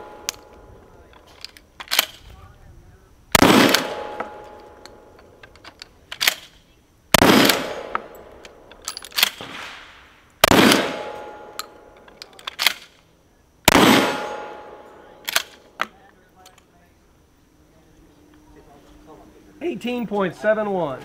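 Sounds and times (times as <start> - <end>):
metallic clicks of shotgun racking: 1.1 - 2.2, 4.6 - 6.6, 11.6 - 13.0, 15.2 - 15.7
shotgun shots: 3.3 - 4.8, 7.1 - 8.2, 9.2 - 11.6, 13.7 - 15.6.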